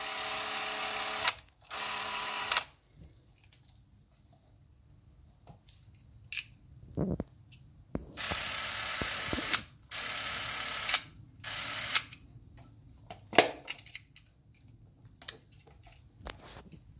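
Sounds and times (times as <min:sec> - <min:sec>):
camera motor whirring: 0:00.1 - 0:02.7, 0:08.2 - 0:12.1.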